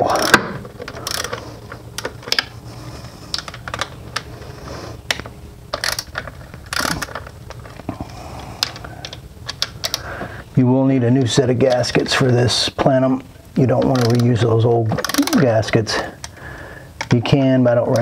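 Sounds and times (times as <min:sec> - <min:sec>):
ratchet wrench clicking: 0:00.1 - 0:01.4, 0:05.8 - 0:07.2, 0:13.9 - 0:14.3, 0:15.0 - 0:15.4.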